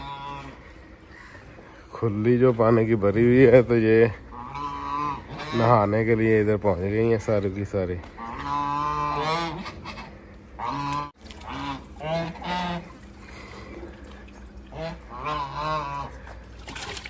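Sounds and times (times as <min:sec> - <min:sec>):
geese honking: 0:00.0 - 0:01.9, 0:04.1 - 0:06.0, 0:08.0 - 0:13.6, 0:14.6 - 0:16.5.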